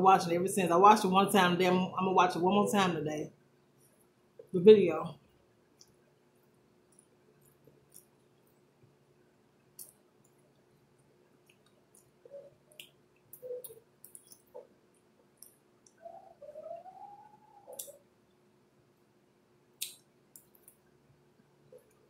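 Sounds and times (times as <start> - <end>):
mouth clicks and smacks chewing: 11.4 - 14.7.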